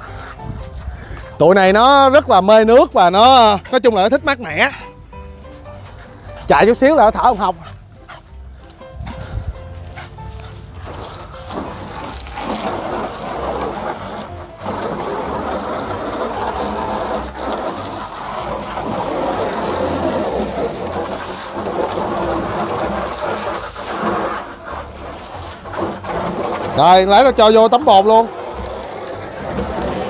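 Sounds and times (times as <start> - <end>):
hose spraying water into tub: 10.0 - 30.0.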